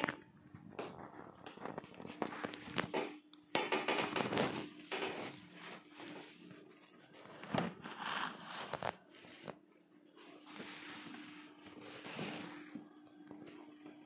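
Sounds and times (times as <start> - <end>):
plastic shrink wrap crinkling: 0.0 - 3.1, 3.7 - 9.6.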